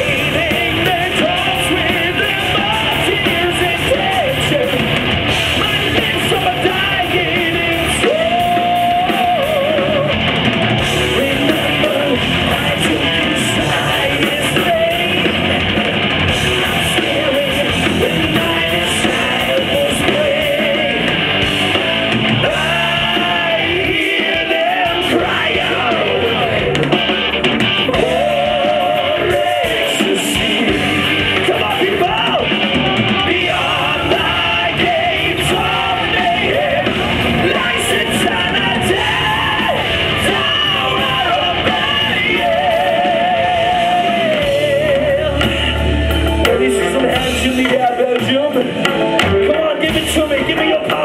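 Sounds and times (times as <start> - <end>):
heavy metal band playing live: 0.0 - 51.0
person singing: 5.6 - 10.2, 16.4 - 21.2, 27.9 - 51.0.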